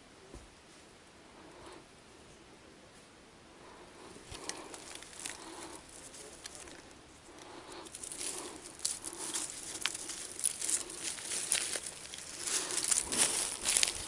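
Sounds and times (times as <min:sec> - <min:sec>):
dry leaves and soil crunching: 0:04.1 - 0:14.0.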